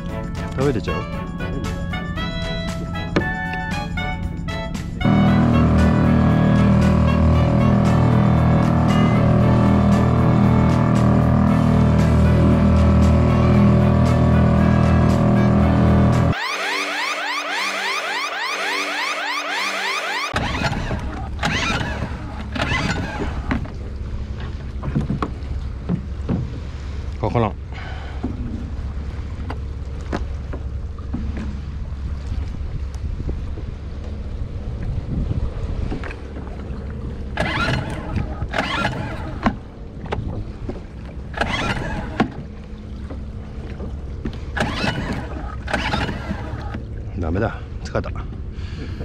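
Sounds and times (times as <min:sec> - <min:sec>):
low rumble of wind and water: 0:00.0 - 0:19.0, 0:20.2 - 0:49.0
pull-start cord whirring: 0:05.0 - 0:23.8, 0:37.3 - 0:40.2, 0:41.1 - 0:42.5, 0:44.5 - 0:46.8.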